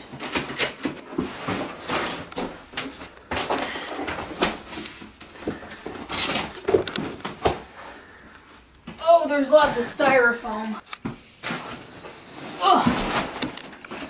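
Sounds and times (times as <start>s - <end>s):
cardboard tearing and rustling: 0.0s - 7.9s, 11.4s - 14.0s.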